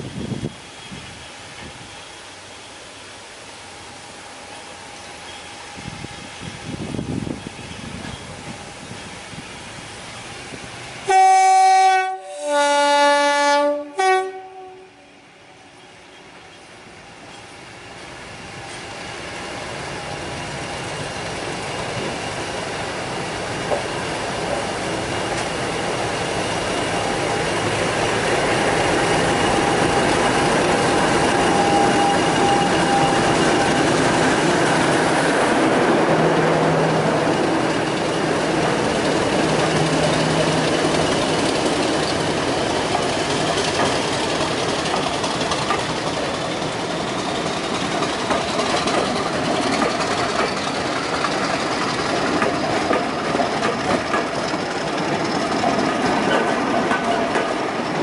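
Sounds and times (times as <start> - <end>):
diesel locomotive passing: 0.0 - 58.0
train wheels clacking over joints: 23.6 - 34.8, 37.2 - 58.0.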